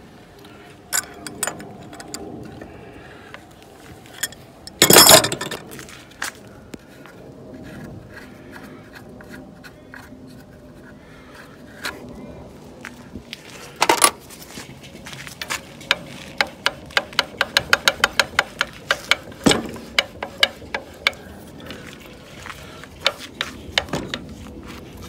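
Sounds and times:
tool clicks and knocks: 1.0s - 2.2s, 4.2s - 5.8s, 13.8s - 14.2s, 15.8s - 21.8s, 23.0s - 24.3s.

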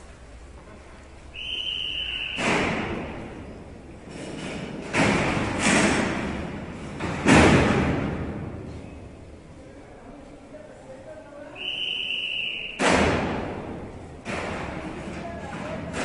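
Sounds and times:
heavy metal door slams: 2.0s - 8.8s, 12.8s - 15.1s.

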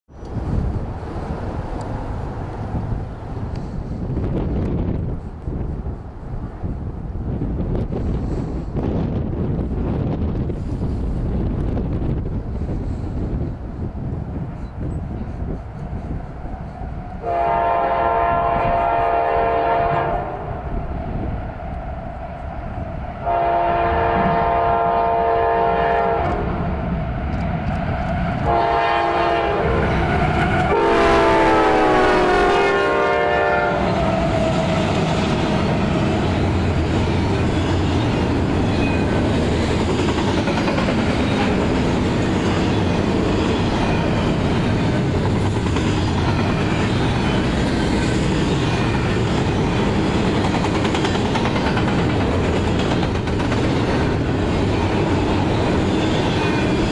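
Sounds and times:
rumble of locomotives: 0.1s - 56.9s
locomotive air horn blasts: 17.2s - 20.6s, 23.2s - 26.5s, 28.4s - 30.0s, 30.6s - 34.3s
wheels clacking on rail joints: 33.8s - 56.9s.

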